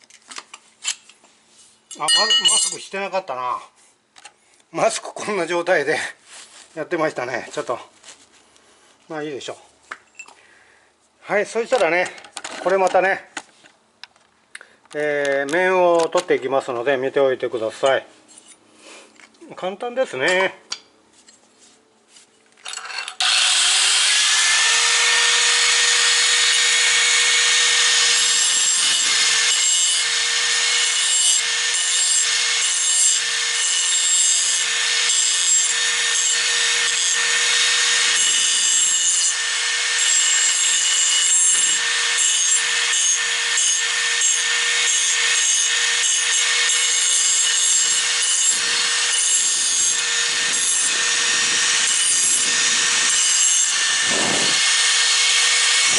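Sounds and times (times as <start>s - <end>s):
angle grinder motor whine: 23.2s - 55.9s
grinding disc on sheet metal: 40.0s - 55.9s.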